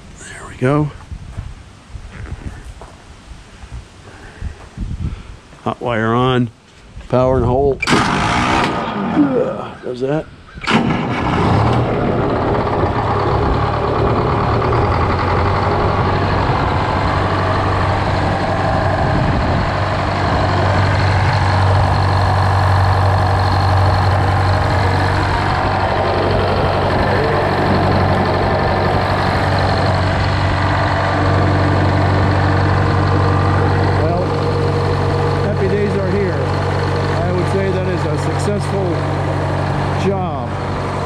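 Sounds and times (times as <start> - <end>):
diesel engine idling: 10.8 - 41.0.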